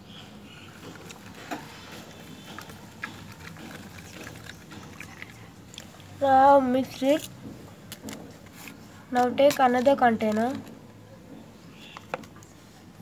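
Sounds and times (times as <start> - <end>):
low background noise: 0.0 - 13.0
plastic cup and straw clicking: 0.9 - 5.9, 7.9 - 10.8.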